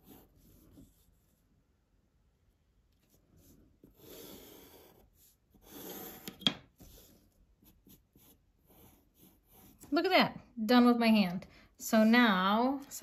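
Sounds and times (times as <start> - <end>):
pencil scratching on paper: 0.0 - 1.4, 3.1 - 10.0.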